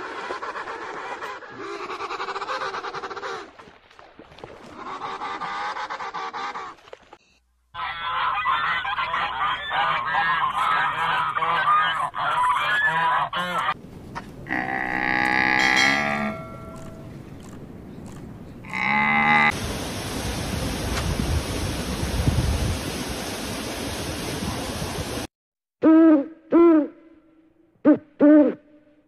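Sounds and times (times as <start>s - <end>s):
geese honking: 7.8s - 13.8s.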